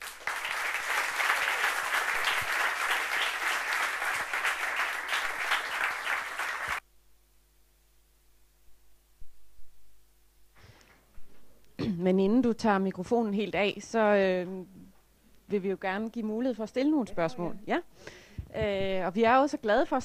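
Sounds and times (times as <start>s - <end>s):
audience applauding: 0.0s - 6.8s
faint room hum: 0.0s - 20.0s.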